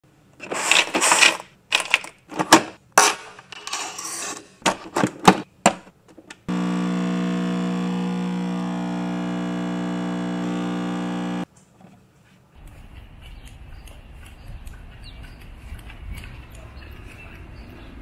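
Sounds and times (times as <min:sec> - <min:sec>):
espresso machine pump humming: 0:06.5 - 0:11.4.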